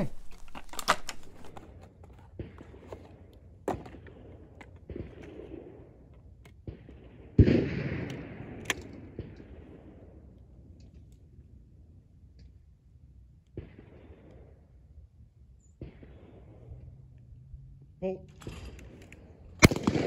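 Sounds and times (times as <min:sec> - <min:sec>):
shotgun shot: 0:06.6 - 0:09.9, 0:19.6 - 0:20.0.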